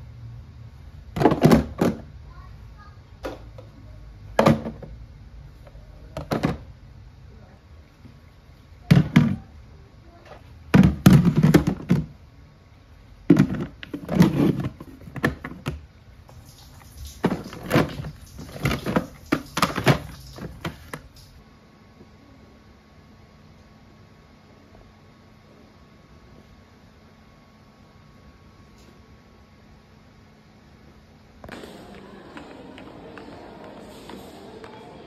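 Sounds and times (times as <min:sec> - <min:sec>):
plastic containers knocking on shelf: 0:01.2 - 0:02.1, 0:04.4 - 0:05.0, 0:08.9 - 0:09.4, 0:10.7 - 0:12.2.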